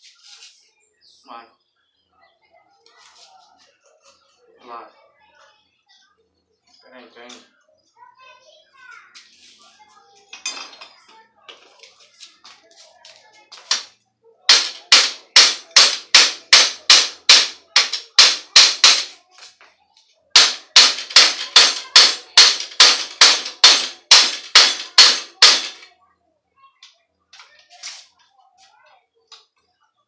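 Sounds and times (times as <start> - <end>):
hammer striking metal: 14.5 - 19.2, 20.4 - 25.9.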